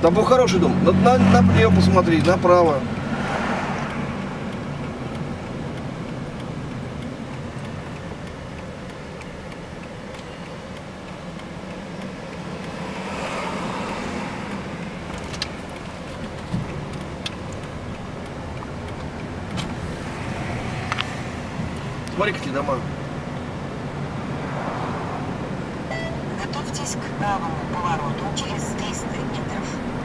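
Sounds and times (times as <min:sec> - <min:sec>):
car engine and tyre drone: 0:00.0 - 0:30.0
sharp clicks: 0:14.5 - 0:20.0.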